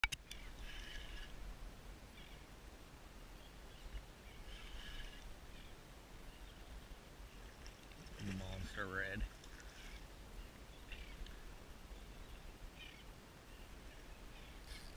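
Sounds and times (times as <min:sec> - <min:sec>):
faint bird calls: 0:00.3 - 0:01.4, 0:02.1 - 0:02.6, 0:03.4 - 0:07.5, 0:09.5 - 0:14.9.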